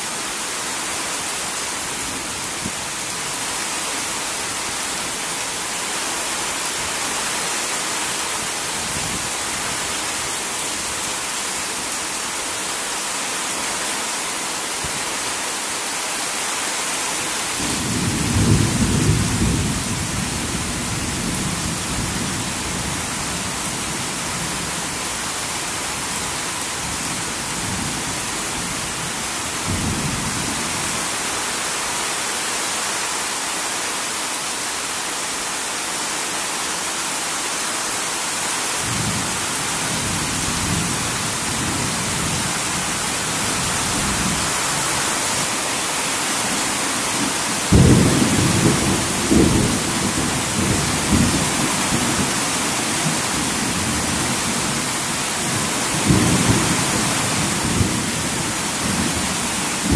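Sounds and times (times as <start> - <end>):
heavy rain on a tin roof: 0.0 - 59.9
loud thunderclap: 47.7 - 51.4
thunder rumbling: 47.7 - 52.3.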